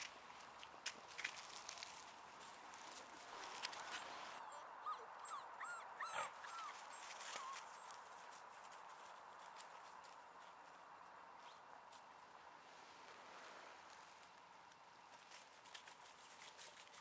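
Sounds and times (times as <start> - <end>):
puppy whimpering: 4.4 - 7.7.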